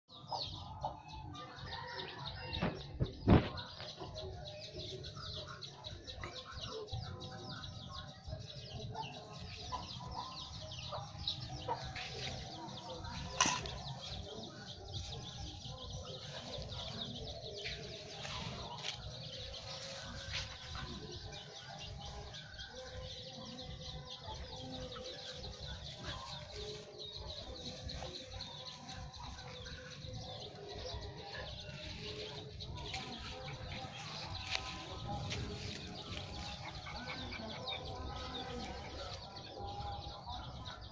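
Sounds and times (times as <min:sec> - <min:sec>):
birds chirping: 0:00.0 - 0:40.9.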